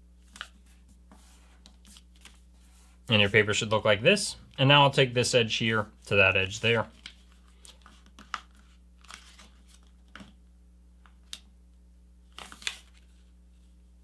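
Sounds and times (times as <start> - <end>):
paper crinkling and rustling: 0.2 - 2.8, 6.7 - 10.4, 12.3 - 13.3.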